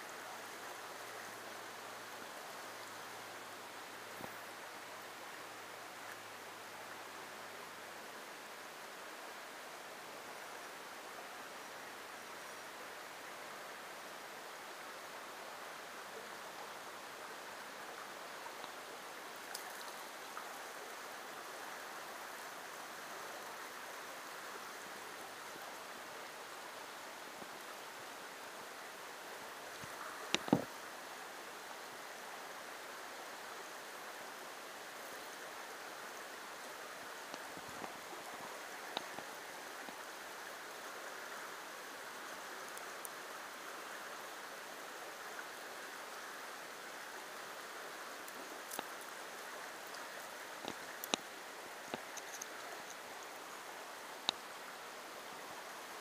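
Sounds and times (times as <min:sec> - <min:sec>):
creek running over rocks: 0:00.0 - 0:56.0
faint clicks: 0:19.4 - 0:20.5, 0:38.9 - 0:40.0, 0:48.2 - 0:49.2, 0:49.8 - 0:53.4.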